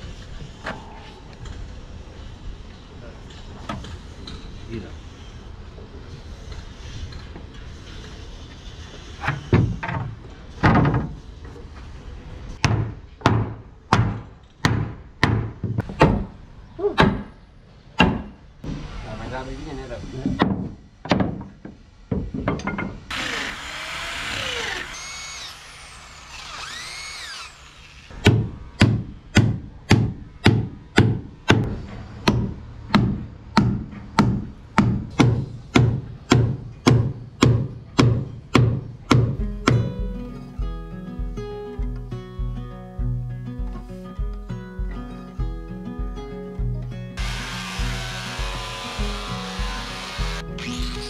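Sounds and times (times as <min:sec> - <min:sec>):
hammer knocking on timber: 0:32.3 - 0:39.9.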